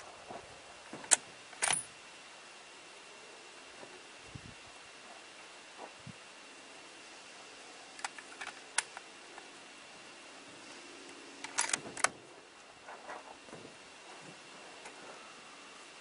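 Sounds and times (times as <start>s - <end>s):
sharp handling clicks: 1.0s - 1.9s, 8.0s - 9.5s, 11.4s - 12.2s
metallic clicks and rattles: 1.1s - 1.9s, 11.4s - 12.1s.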